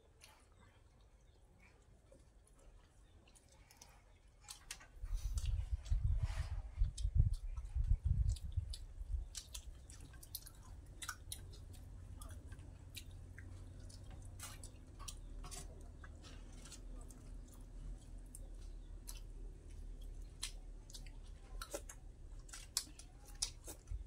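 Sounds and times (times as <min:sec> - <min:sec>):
chewing and lip-smacking: 0:00.0 - 0:24.0.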